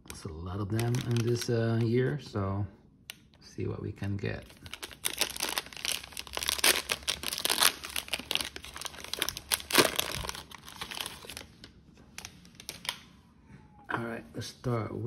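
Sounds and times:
plastic wrapper tearing and crinkling: 0:00.1 - 0:02.3, 0:04.2 - 0:13.1.

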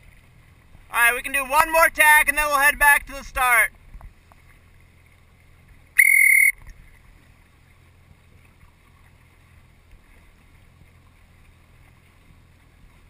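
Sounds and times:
boat motor hum: 0:00.0 - 0:13.0
water: 0:00.0 - 0:13.0
short whistle blast: 0:06.0 - 0:06.6.

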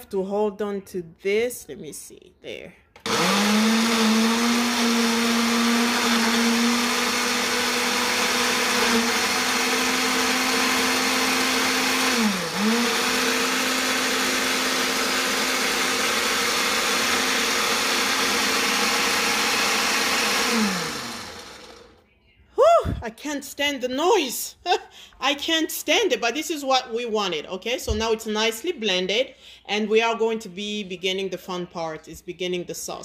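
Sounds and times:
blender motor running: 0:03.0 - 0:22.0.

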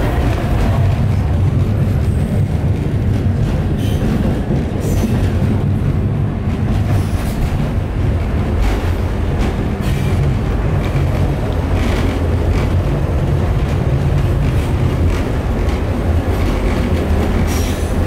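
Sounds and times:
train rumbling: 0:00.0 - 0:18.0
high-pitched train squeals: 0:17.5 - 0:18.0.

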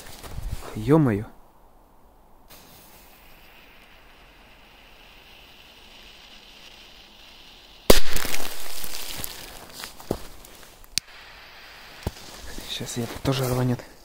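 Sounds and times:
faint steady hiss: 0:00.0 - 0:14.0
firecracker bang with echo: 0:07.9 - 0:09.2.

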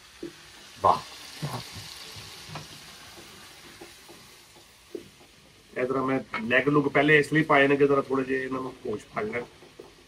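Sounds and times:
chicken sizzling in oil: 0:00.0 - 0:10.0
wooden spatula knocking pan: 0:01.6 - 0:07.1, 0:09.0 - 0:10.0.

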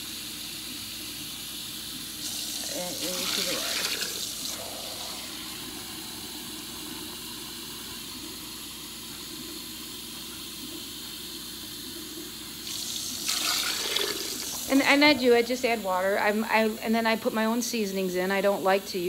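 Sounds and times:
water pouring into a pot: 0:02.1 - 0:14.9.

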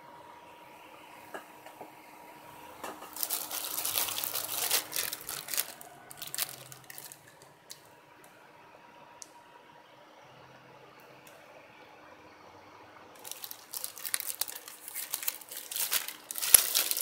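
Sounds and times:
plastic bag crinkling: 0:03.1 - 0:07.8, 0:13.2 - 0:17.0.

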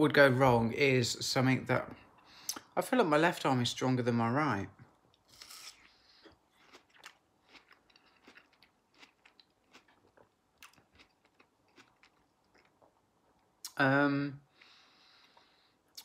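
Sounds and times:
faint crunching chewing: 0:05.1 - 0:13.8
person biting melon: 0:05.3 - 0:06.0.

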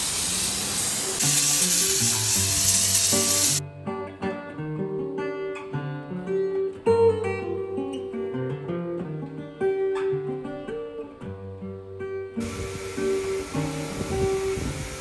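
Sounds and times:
spray hissing: 0:00.0 - 0:03.6, 0:12.4 - 0:15.0
acoustic guitar music: 0:00.0 - 0:15.0.

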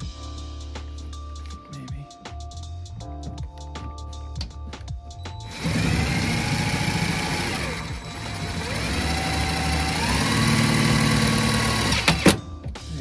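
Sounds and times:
cordless drill whining: 0:05.5 - 0:12.3.

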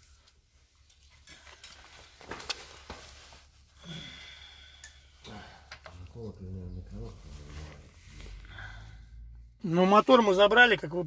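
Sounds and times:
hands handling engine parts: 0:00.0 - 0:03.7.

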